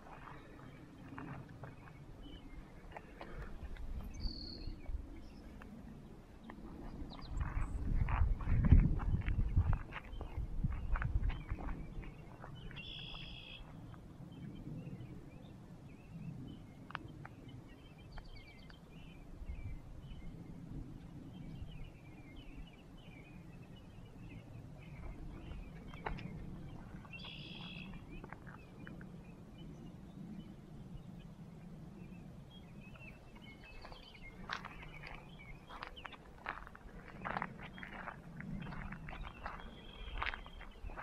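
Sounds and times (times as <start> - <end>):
footsteps on gravel: 0.0 - 2.0, 6.8 - 13.8, 25.0 - 28.7, 33.6 - 41.0
low background rumble: 0.0 - 41.0
small birds chirping: 0.0 - 41.0.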